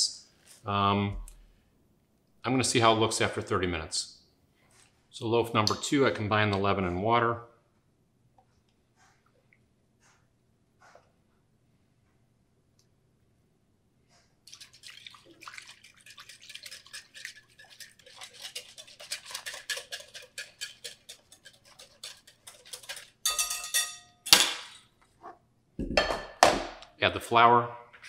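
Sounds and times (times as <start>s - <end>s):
ringing clink of tools: 23.3s - 24.2s.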